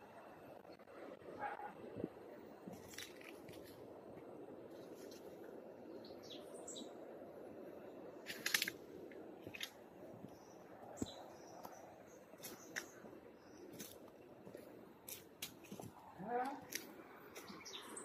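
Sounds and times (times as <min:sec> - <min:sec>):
low outdoor rush: 0:00.0 - 0:18.0
bird chirps: 0:05.9 - 0:07.0, 0:10.3 - 0:13.8, 0:17.3 - 0:18.0.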